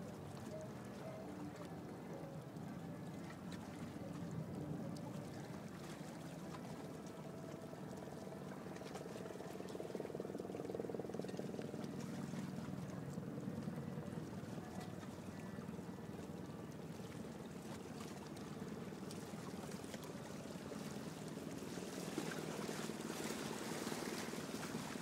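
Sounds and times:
boat motor rumble: 0.0s - 25.0s
water lapping against boat hull: 0.0s - 25.0s.

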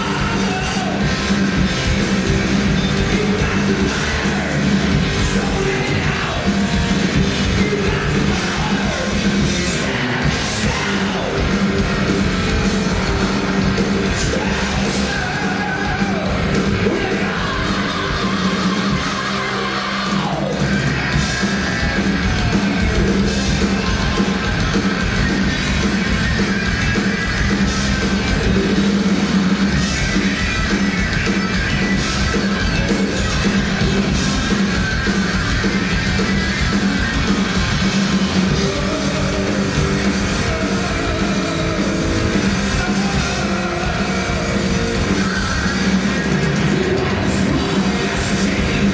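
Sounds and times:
shouted vocals: 0.0s - 1.6s, 2.4s - 27.0s, 36.3s - 48.9s
heavy metal band playing live: 0.0s - 48.9s.

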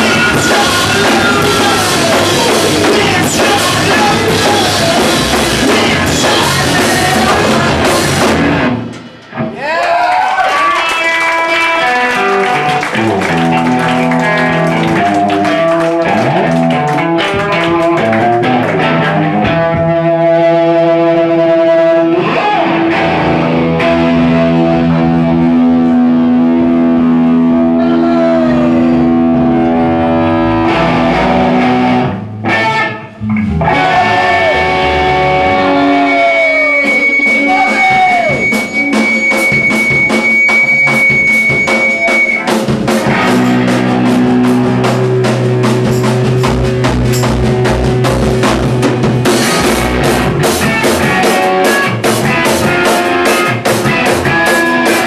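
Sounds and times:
distorted electric guitars: 0.0s - 9.6s, 10.8s - 55.0s
steady high tone: 33.1s - 42.5s.

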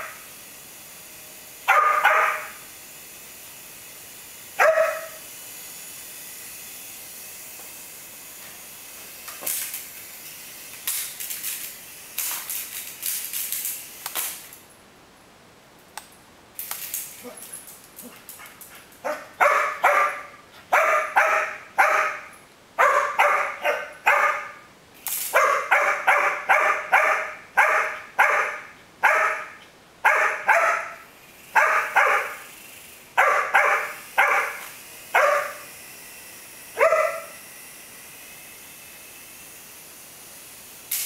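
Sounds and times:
dog barking: 1.7s - 2.6s, 4.6s - 5.2s, 19.0s - 24.6s, 25.4s - 31.0s, 31.6s - 32.4s, 33.2s - 34.6s, 35.2s - 35.6s, 36.8s - 37.4s.

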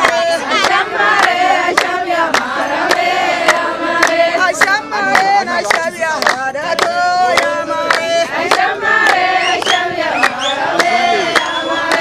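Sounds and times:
group singing a chant: 0.0s - 12.0s
hand claps: 0.0s - 12.0s.

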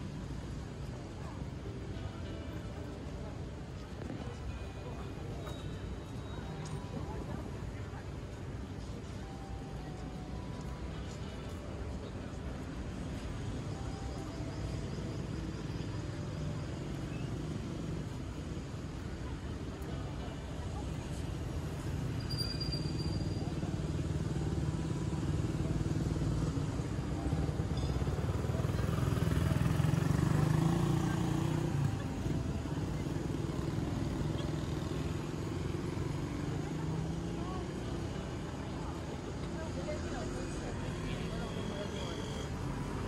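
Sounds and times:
cars and motorcycles driving: 0.0s - 43.0s
city traffic hum: 0.0s - 43.0s
motorcycle engine passing: 28.2s - 37.5s.

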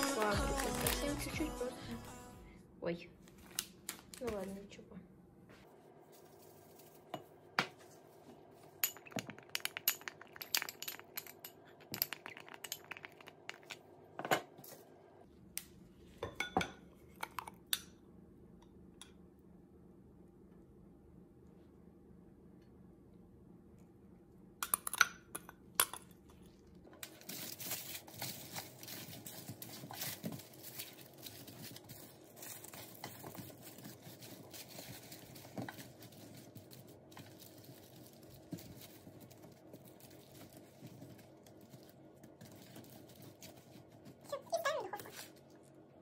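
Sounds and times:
aluminium foil crinkling: 0.0s - 1.6s, 3.3s - 4.8s, 27.0s - 45.8s.

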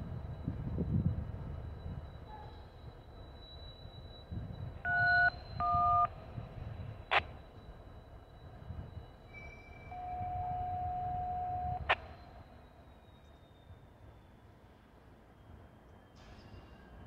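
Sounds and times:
long steady lower tone: 0.6s - 14.5s
dual-tone beeps: 4.9s - 6.1s.

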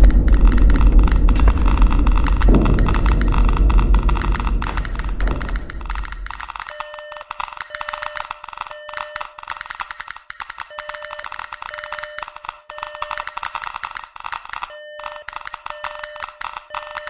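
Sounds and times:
dense crackle of rapid clicks: 0.0s - 17.0s
electronic beeping: 1.7s - 10.0s, 10.7s - 13.4s, 14.7s - 17.0s.

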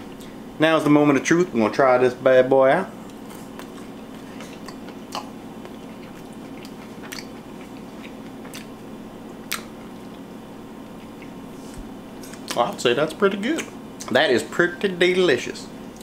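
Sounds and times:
steady low hum: 0.0s - 16.0s
man chewing food: 3.0s - 12.6s.

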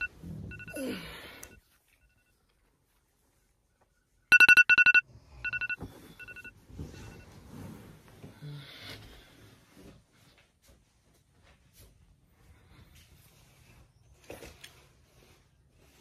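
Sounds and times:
alarm high-pitched beeps: 0.0s - 0.8s, 4.3s - 6.5s
soft rustling and shuffling: 1.6s - 4.3s, 5.6s - 16.0s.

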